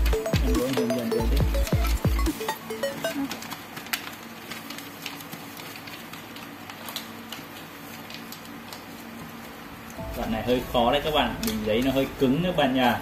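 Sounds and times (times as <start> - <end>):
paper rustling and crinkling: 2.9 - 13.0.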